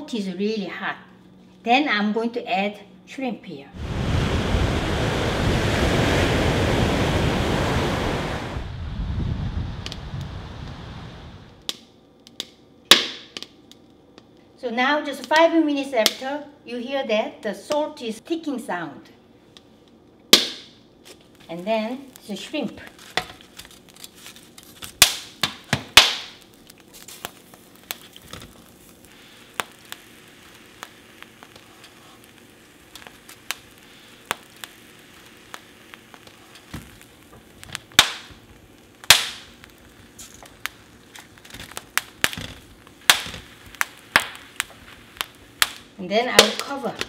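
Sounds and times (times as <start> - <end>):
faint sizzle: 0.0 - 11.7, 21.0 - 47.0
salt ticking and popping: 9.8 - 14.4, 21.1 - 47.0
loud cracks: 22.9 - 47.0.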